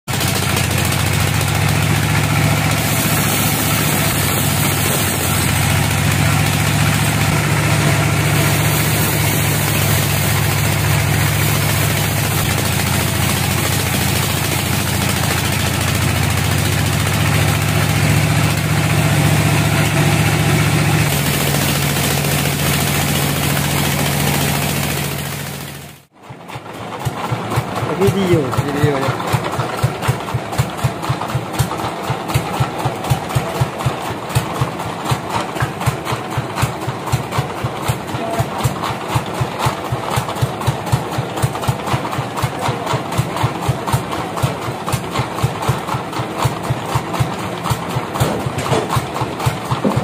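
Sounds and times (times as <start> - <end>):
band sawmill humming: 0.2 - 26.0.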